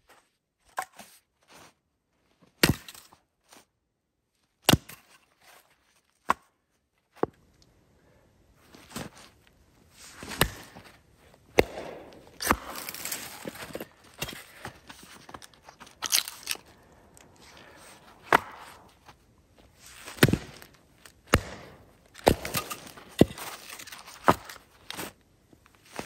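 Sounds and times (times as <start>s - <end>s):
hatchet chopping wood: 2.6s - 3.0s, 4.7s - 5.1s, 11.5s - 14.8s, 18.2s - 18.9s, 20.1s - 25.0s.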